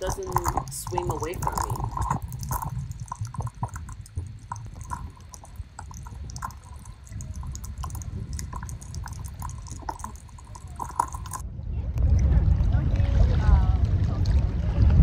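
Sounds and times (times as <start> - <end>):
small clicks and pops: 0.0 - 11.4
muffled water sloshing and bubbling: 0.0 - 15.0.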